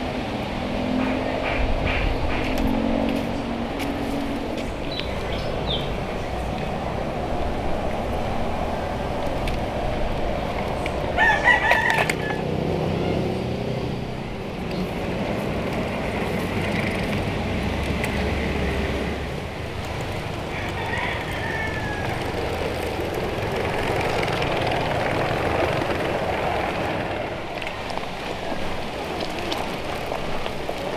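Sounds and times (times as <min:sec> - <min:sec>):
rooster crowing: 0:11.2 - 0:12.5, 0:20.4 - 0:22.6.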